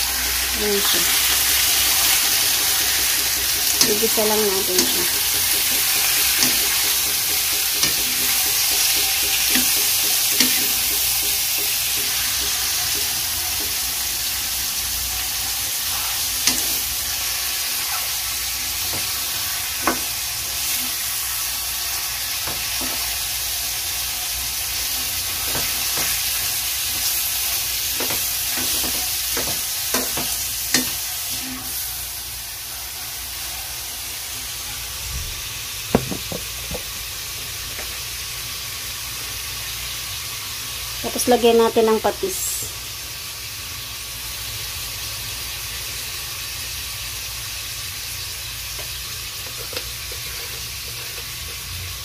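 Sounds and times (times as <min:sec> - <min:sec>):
meat sizzling in a wok: 0:00.0 - 0:52.0
wooden spatula clicking on pan: 0:04.8 - 0:13.7.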